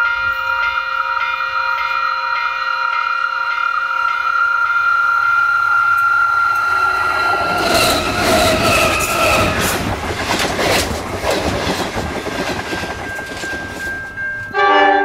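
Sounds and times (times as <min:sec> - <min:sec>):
high steady ringing: 0:00.0 - 0:09.6
train rumbling overhead: 0:00.0 - 0:15.0
wheels clattering over rails: 0:05.9 - 0:14.5.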